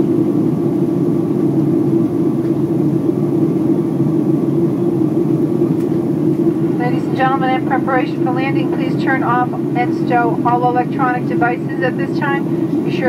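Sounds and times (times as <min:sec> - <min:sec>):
jet airliner cabin drone: 0:00.0 - 0:13.0.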